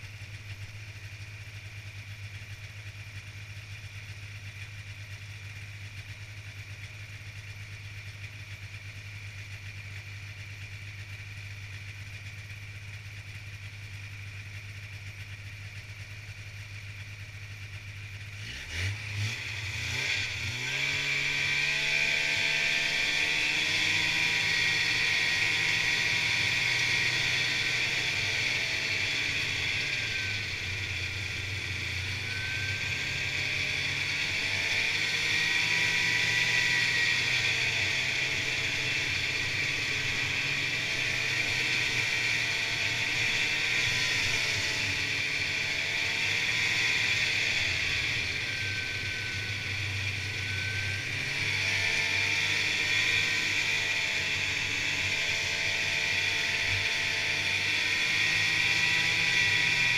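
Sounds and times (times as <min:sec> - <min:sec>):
snowmobile engine running: 0:18.2 - 0:59.9.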